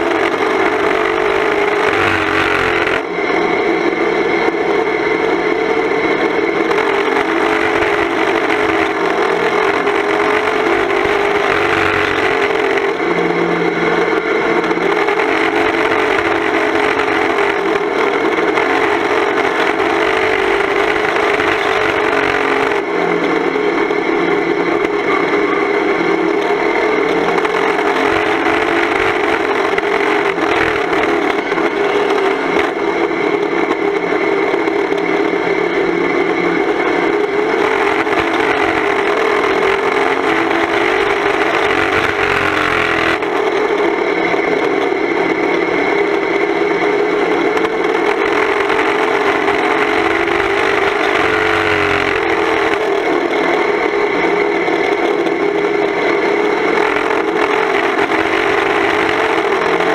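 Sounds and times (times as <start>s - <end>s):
car engine revving hard: 0.0s - 3.5s, 6.0s - 23.9s, 26.6s - 33.1s, 37.0s - 43.5s, 47.6s - 54.1s, 55.4s - 59.9s.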